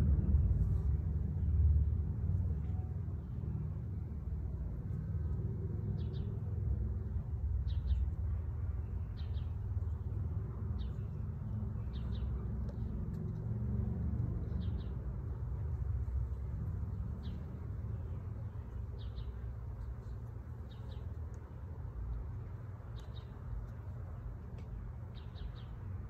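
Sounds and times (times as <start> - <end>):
low outdoor rumble: 0.0 - 26.0
bird chirping: 10.8 - 12.9.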